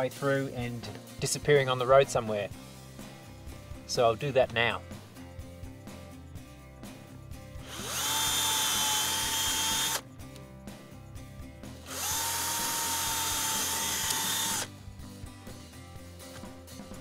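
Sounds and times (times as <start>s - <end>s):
cordless drill whining: 7.6s - 10.0s, 11.8s - 14.7s.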